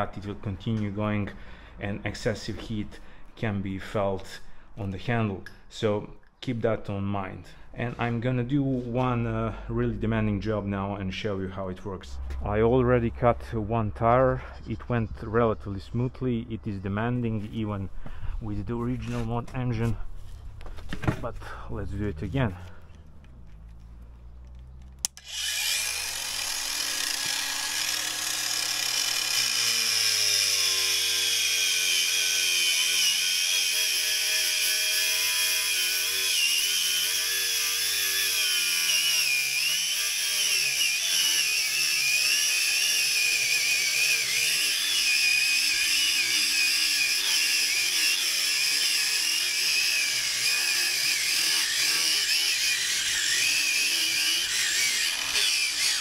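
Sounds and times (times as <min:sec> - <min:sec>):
angle grinder cutting tyre: 0:20.7 - 0:56.0.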